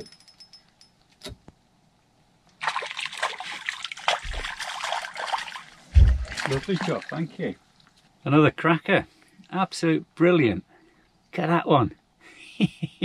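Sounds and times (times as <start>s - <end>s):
fish splashing at water surface: 2.6s - 7.3s.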